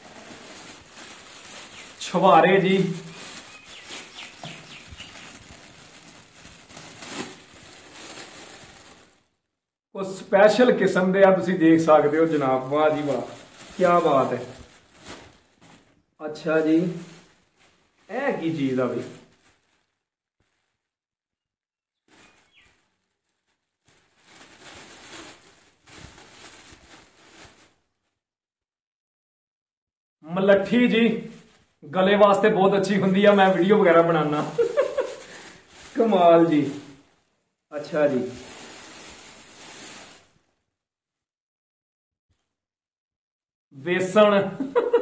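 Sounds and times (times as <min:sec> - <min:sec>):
dried fruit shifting in bag: 0:00.0 - 0:09.3, 0:10.5 - 0:20.6, 0:22.1 - 0:27.8, 0:32.3 - 0:37.1, 0:37.8 - 0:40.3
plastic bag crinkling: 0:00.0 - 0:09.5, 0:10.5 - 0:20.9, 0:22.1 - 0:28.0, 0:30.5 - 0:40.5, 0:44.0 - 0:45.0.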